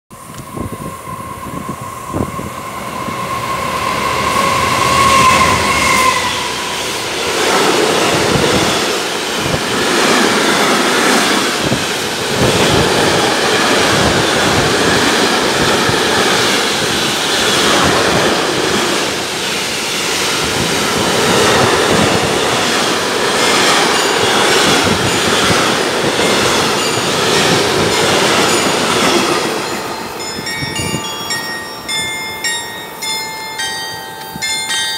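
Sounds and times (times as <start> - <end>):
freight train rumbling past: 0.1 - 34.9
high wheel squeal: 0.3 - 7.2.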